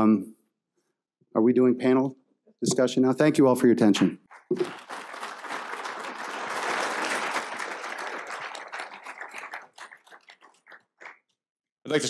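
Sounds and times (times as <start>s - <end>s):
audience applauding: 4.3s - 11.3s.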